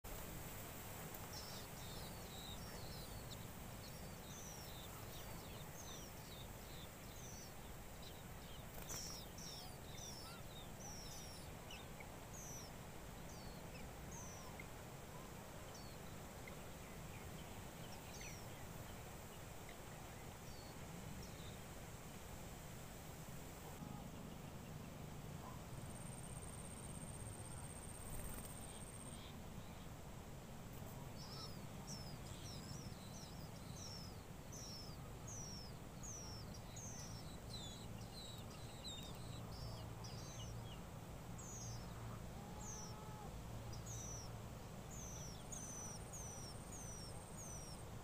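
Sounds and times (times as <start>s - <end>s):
nestlings chirping: 1.0s - 14.8s, 25.4s - 29.8s, 30.7s - 44.3s, 44.9s - 48.0s.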